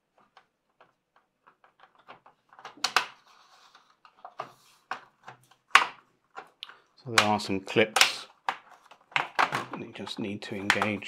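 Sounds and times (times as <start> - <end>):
plastic clips clicking into place: 4.9 - 11.0.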